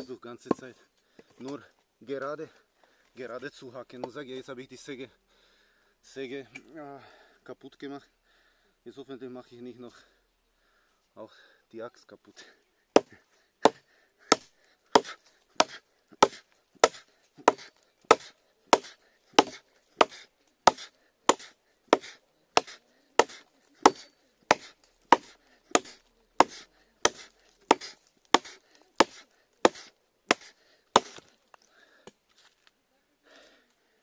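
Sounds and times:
hatchet chopping dry branch: 13.0s - 31.3s.

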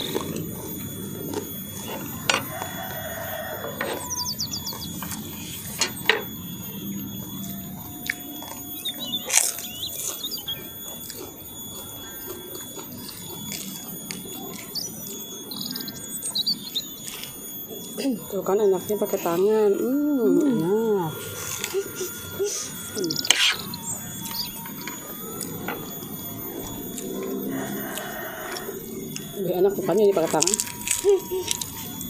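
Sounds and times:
chewing: 0.0s - 17.4s, 21.2s - 29.4s, 30.2s - 32.0s
crackers crunching: 0.0s - 17.9s, 21.1s - 32.0s
faint high-pitched ringing: 0.0s - 32.0s
bird chirps: 3.1s - 18.1s, 18.8s - 28.2s.

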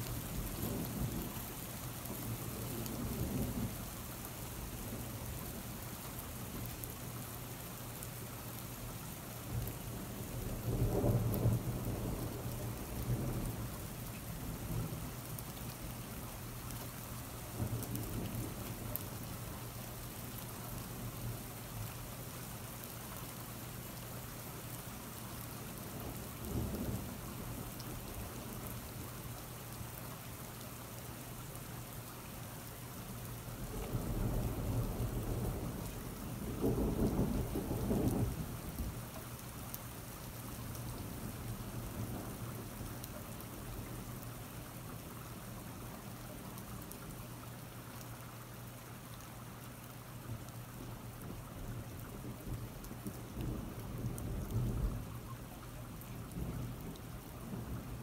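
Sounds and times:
steady rain falling: 0.0s - 58.0s
thunder rumbling: 33.6s - 39.0s.

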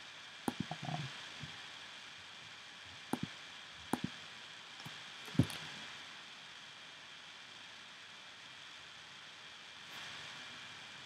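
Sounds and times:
steady hiss: 0.0s - 11.0s
computer mouse clicks: 0.5s - 1.1s, 3.9s - 4.1s.

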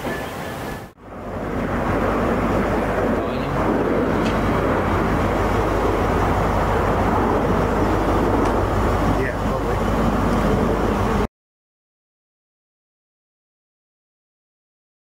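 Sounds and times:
diesel locomotive engine rumbling: 0.0s - 11.3s.

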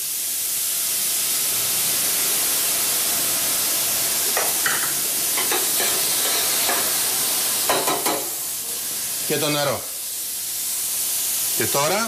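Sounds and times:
meat sizzling in a pan: 0.0s - 12.0s
utensil scraping in a pan: 4.3s - 8.4s.

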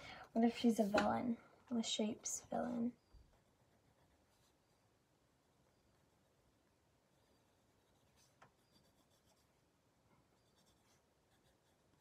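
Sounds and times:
pencil scratching on paper: 3.4s - 4.8s, 7.1s - 9.6s, 10.4s - 12.0s.

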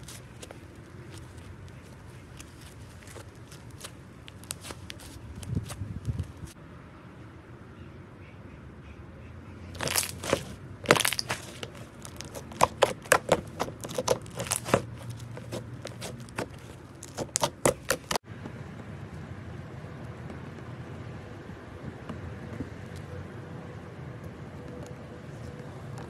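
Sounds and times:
fingers squeezing slime: 9.8s - 18.2s.

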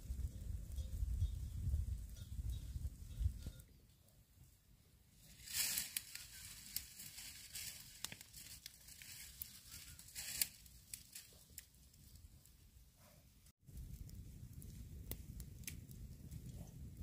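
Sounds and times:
dry sticks and leaves rustling: 5.2s - 12.5s.

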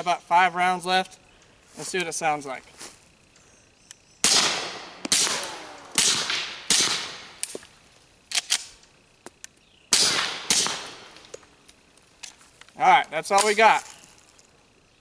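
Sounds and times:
suppressed pistol shots: 4.2s - 7.6s, 9.9s - 11.2s.

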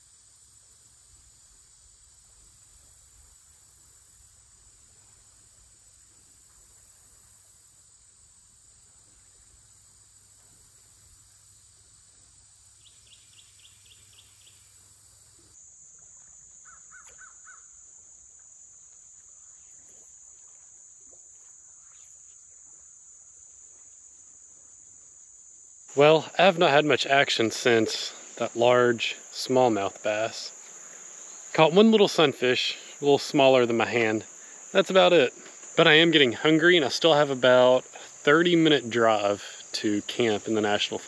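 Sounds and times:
insects droning: 0.0s - 41.0s
quick bird calls: 16.6s - 17.8s.

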